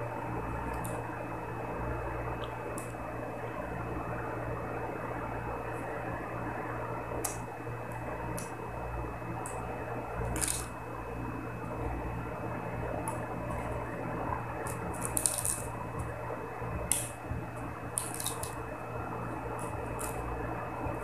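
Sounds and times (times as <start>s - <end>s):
steady low hum: 0.0s - 21.0s
fingers picking at food: 10.3s - 10.7s, 14.6s - 16.1s, 16.8s - 17.2s, 17.9s - 18.6s, 19.6s - 20.2s.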